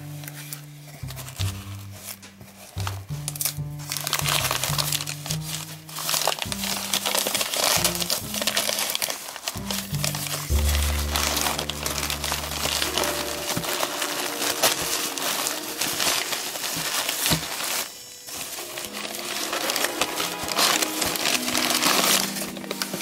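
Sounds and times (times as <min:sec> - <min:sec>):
quiet background music: 0:00.0 - 0:23.0
packing paper crumpling: 0:00.2 - 0:23.0.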